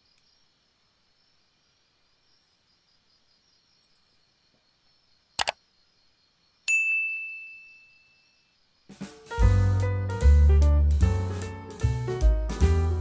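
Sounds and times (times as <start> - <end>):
night insects chirring: 0.0 - 6.9, 7.6 - 9.4
bright bell ding: 6.7 - 8.3
piano and drums music: 8.9 - 13.0.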